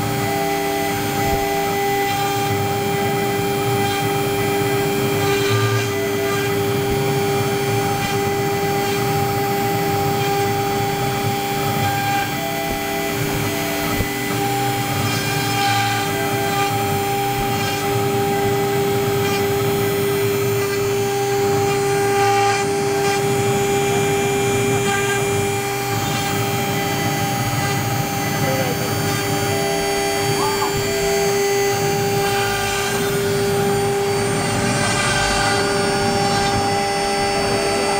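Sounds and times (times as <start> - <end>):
bit cutting wood: 0.0 - 37.9
router spindle whine: 0.0 - 37.9.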